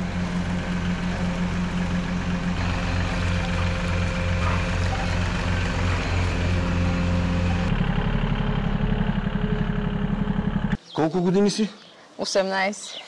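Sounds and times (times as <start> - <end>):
milking machine humming: 0.0 - 7.8
small tractor engine running: 0.0 - 10.8.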